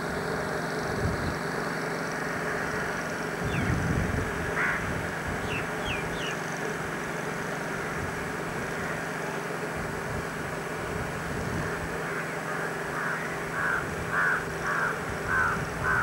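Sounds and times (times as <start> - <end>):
distant traffic: 0.0 - 16.0
wind hiss: 0.0 - 16.0
wind rumble on microphone: 0.9 - 1.4, 3.4 - 6.3, 9.8 - 12.0, 15.0 - 16.0
bird calling: 2.4 - 3.8, 4.5 - 6.5, 12.0 - 16.0.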